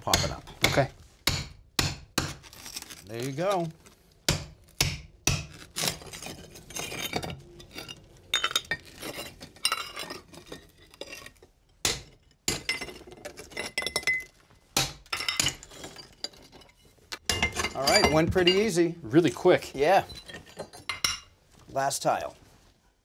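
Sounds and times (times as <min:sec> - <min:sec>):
hammer striking chisel: 0:00.0 - 0:02.4, 0:04.3 - 0:05.6
chisel scraping under tiles: 0:05.6 - 0:14.3.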